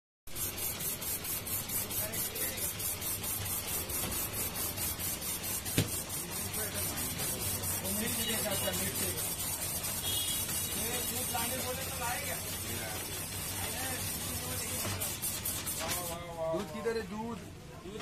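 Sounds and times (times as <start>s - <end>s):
ice shaving scraping hiss: 0.3s - 16.7s
sharp knock: 5.7s - 6.0s.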